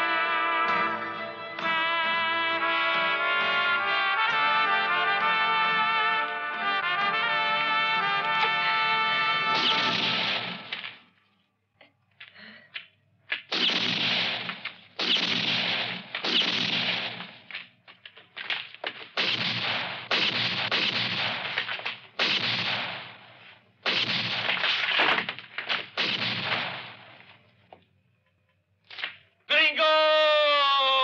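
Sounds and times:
revolver gunshots with echo: 9.6 - 10.9, 13.5 - 17.4, 19.1 - 27.1.

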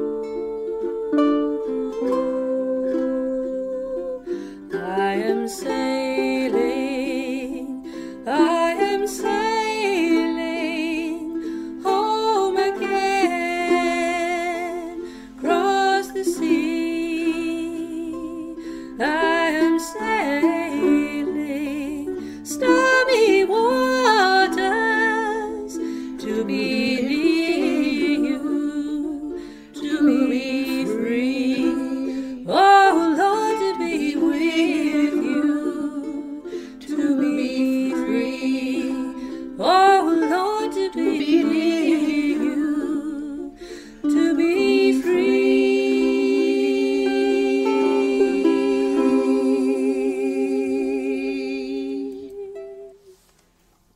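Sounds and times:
ukulele playing: 0.0 - 53.3
woman humming: 37.6 - 53.0.

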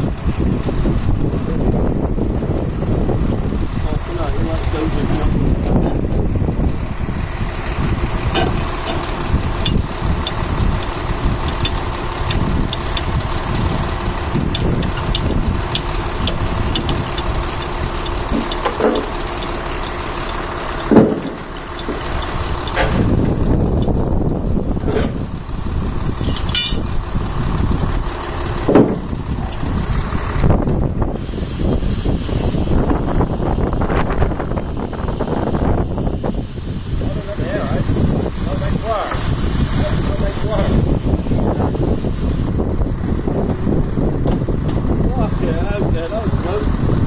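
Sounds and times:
diesel truck engine running: 0.0 - 47.0
clicks and rattles: 8.3 - 23.1
loud knocks: 20.9 - 22.0, 28.7 - 29.1
short squeak: 26.2 - 26.8, 28.6 - 29.1.

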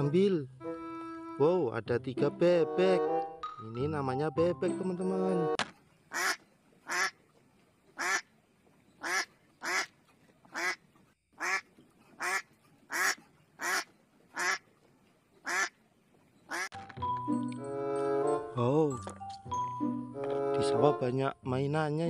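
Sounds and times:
duck quacking: 6.1 - 7.2, 8.0 - 8.3, 9.0 - 9.9, 10.5 - 10.8, 11.4 - 14.6, 15.4 - 15.8, 16.5 - 16.8.

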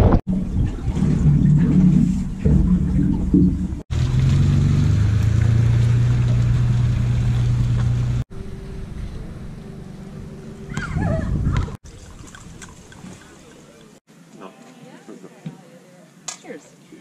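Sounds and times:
vehicle engine running: 3.7 - 10.8.

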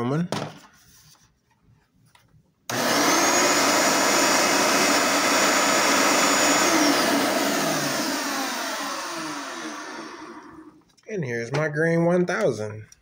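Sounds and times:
vacuum cleaner motor running: 2.7 - 10.8.

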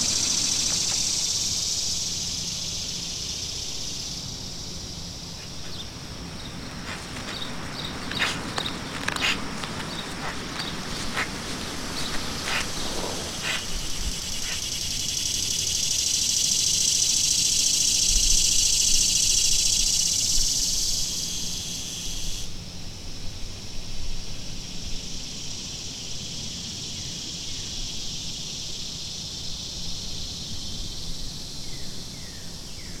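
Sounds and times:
insects trilling: 0.0 - 33.0.

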